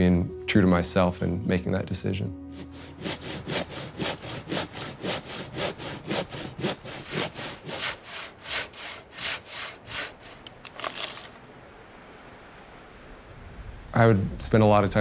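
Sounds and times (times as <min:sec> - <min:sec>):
hand saw cutting a log: 0:02.5 - 0:11.3.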